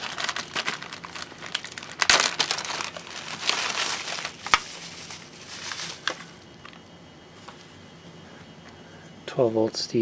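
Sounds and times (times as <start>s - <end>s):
bubble wrap crinkling: 0.0s - 6.8s.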